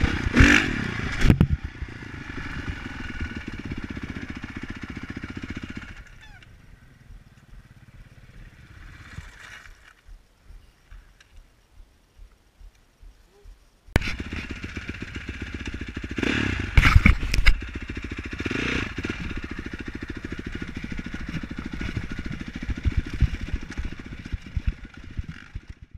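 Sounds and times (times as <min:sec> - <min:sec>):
motorcycle engine idling and revving: 0:00.0 - 0:10.7, 0:14.0 - 0:25.9.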